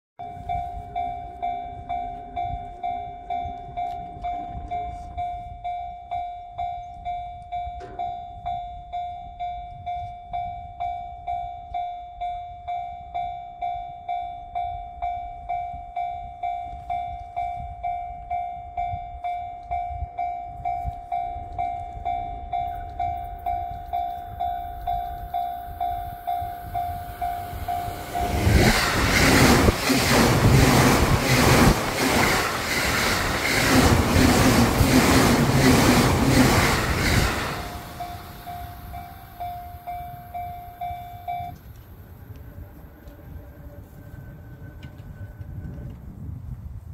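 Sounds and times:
level-crossing bell ringing: 0.2s - 41.6s
train arriving rush: 14.6s - 46.9s.

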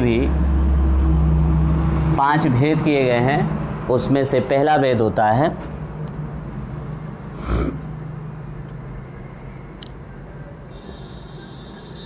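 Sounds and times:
man breathing: 7.3s - 7.8s.

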